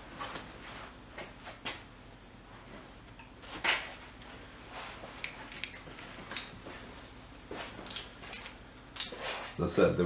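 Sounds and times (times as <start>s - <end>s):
tools and metal parts handled: 5.2s - 6.7s, 7.8s - 9.2s.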